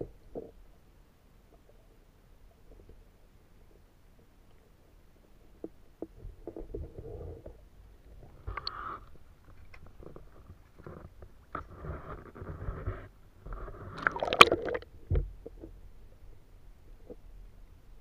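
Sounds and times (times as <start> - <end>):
water sloshing and splashing: 13.5 - 15.7.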